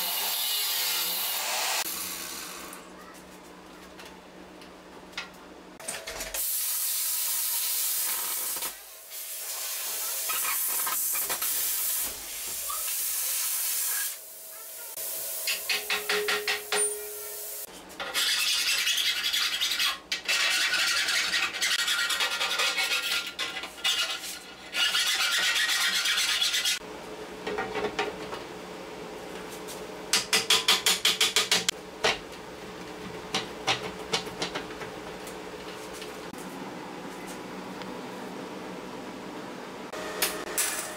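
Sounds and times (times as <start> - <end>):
welder crackling hiss: 6.4 - 16.0.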